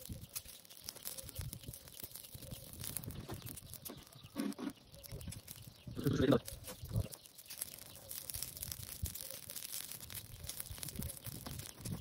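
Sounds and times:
brush and twigs crackling in fire: 0.0 - 12.0
low grunt-like vocal sound: 6.0 - 6.4.

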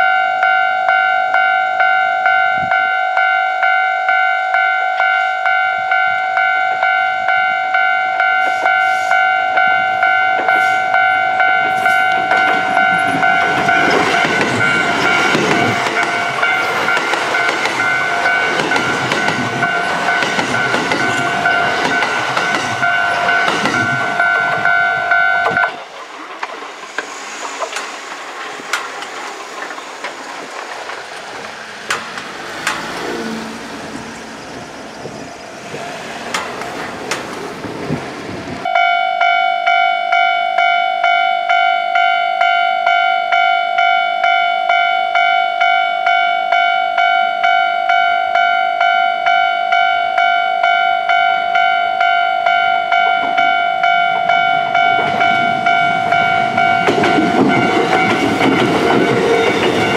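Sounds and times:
level crossing bell ringing: 0.0 - 25.7, 38.7 - 59.9
train wheels clattering over joints: 11.6 - 38.4, 56.1 - 59.9.

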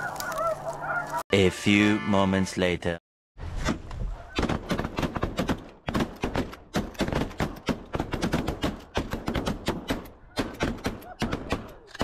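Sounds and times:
shotguns firing: 4.4 - 12.0.

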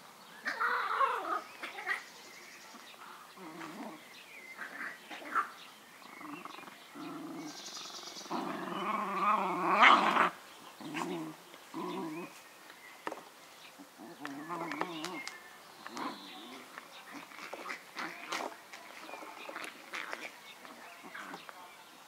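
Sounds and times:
dogs growling while play-fighting: 3.0 - 12.4, 14.0 - 18.4.

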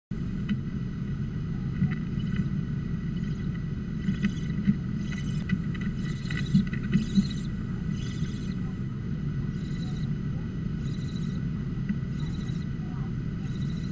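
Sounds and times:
steady low rumble: 0.1 - 13.9.

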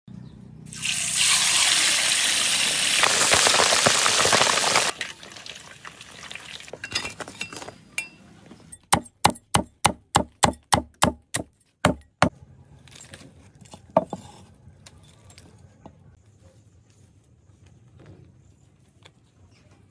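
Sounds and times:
deep-frying sizzle: 0.7 - 6.8.

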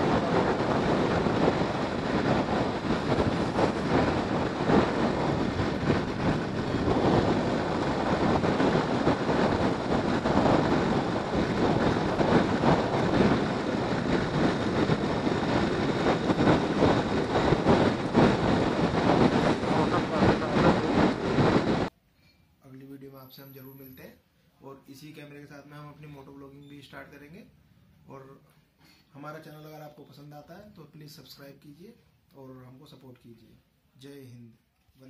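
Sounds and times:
motorcycle riding at speed: 0.0 - 21.9
wind buffeting microphone: 0.0 - 21.9.

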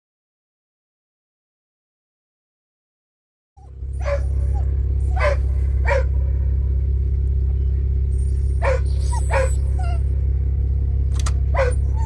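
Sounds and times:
dog barking: 3.6 - 6.2, 8.6 - 10.0, 11.5 - 12.0
car engine rumbling: 3.6 - 12.0.

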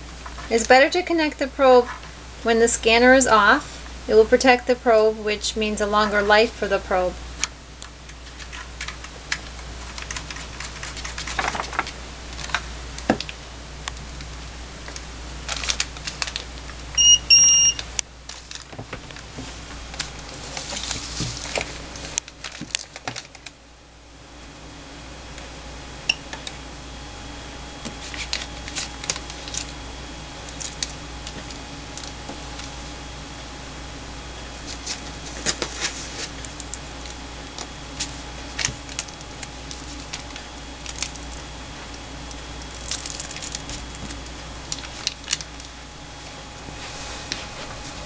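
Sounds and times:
clicks and rustling of handling: 7.4 - 16.8
short electronic beeps: 17.0 - 17.8.

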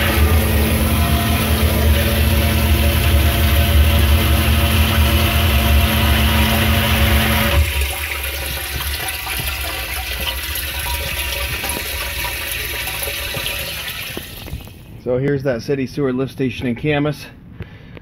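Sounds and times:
pump humming: 0.0 - 14.9
water running and splashing: 0.8 - 14.8.

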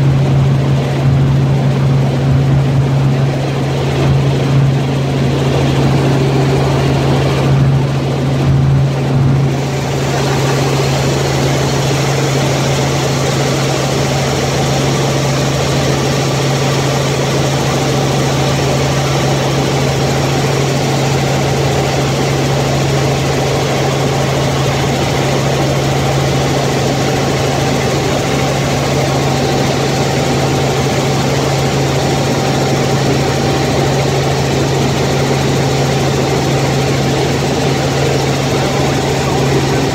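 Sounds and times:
helicopter engine and rotor drone: 0.0 - 39.9.

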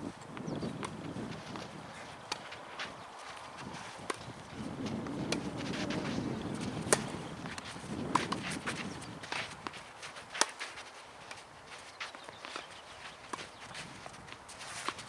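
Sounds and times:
feet scuffing on clay: 0.0 - 15.0
tennis ball bouncing: 0.4 - 11.5.

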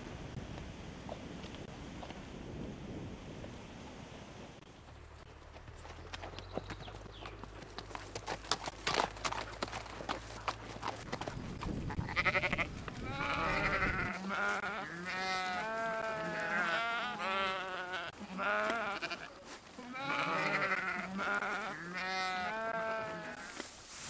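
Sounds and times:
sheep bleating: 12.0 - 23.6.

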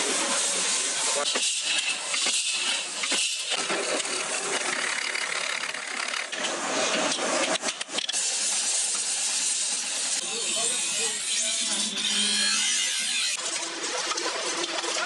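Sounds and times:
workshop machines rattling: 0.0 - 10.8.

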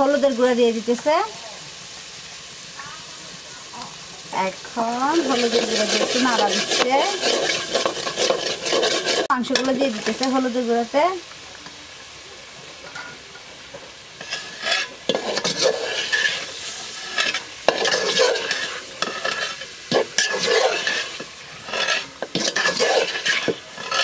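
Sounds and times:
food sizzling in a pot: 0.0 - 24.0
spoon scraping a pot: 5.1 - 10.4, 14.2 - 24.0.

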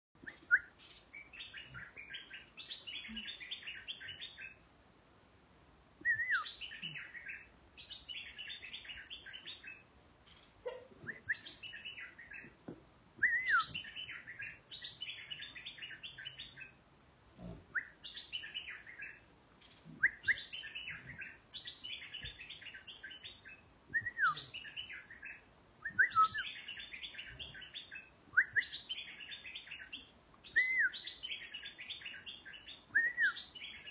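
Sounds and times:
bulbul singing: 13.2 - 16.8, 17.7 - 33.9.

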